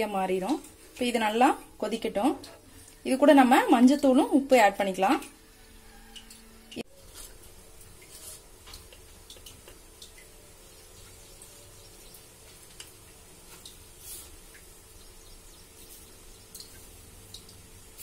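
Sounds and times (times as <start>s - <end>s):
stove hiss and hum: 0.0s - 18.0s
gravy simmering with pops: 5.2s - 18.0s.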